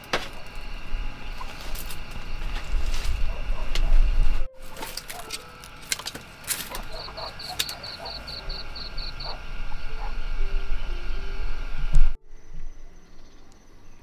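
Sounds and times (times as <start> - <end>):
chickens clucking: 0.0 - 11.7
low rumble: 0.0 - 14.0
high chirps: 4.4 - 14.0.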